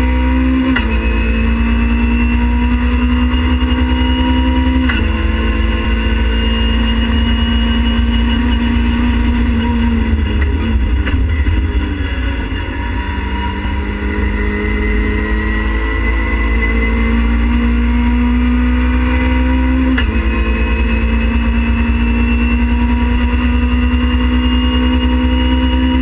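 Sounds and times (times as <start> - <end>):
race car engine revving: 0.0 - 26.0.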